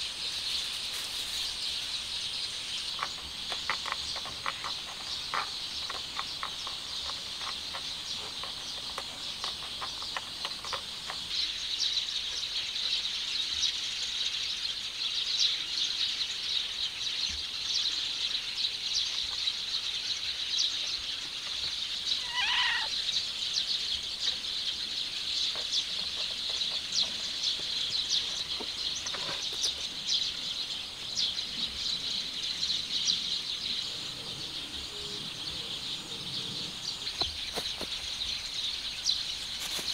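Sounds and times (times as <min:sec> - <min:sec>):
insect chorus chirping: 0:00.0 - 0:39.9
short pitched animal call: 0:22.2 - 0:22.9.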